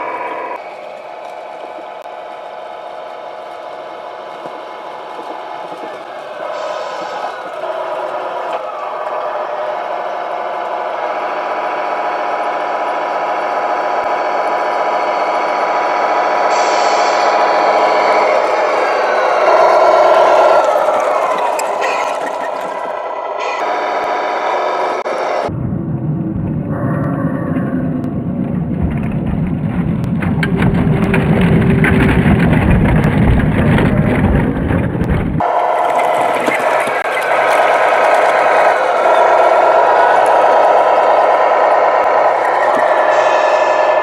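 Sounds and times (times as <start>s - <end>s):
simulated diesel engine sound: 0.0s - 44.0s
high hiss: 6.3s - 7.5s, 16.5s - 20.5s, 39.6s - 44.0s.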